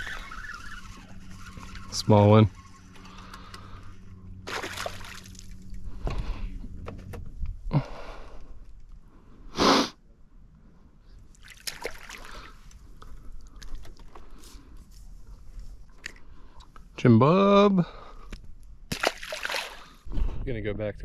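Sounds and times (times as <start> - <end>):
low steady hum: 0.0 - 21.0
water splashing: 4.4 - 5.6, 11.4 - 12.5, 18.9 - 20.0.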